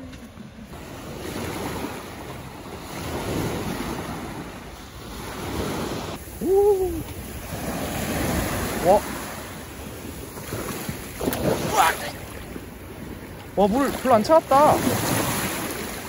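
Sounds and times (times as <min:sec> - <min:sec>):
sea waves breaking on beach: 0:00.0 - 0:16.0
voice-like call: 0:06.4 - 0:07.1.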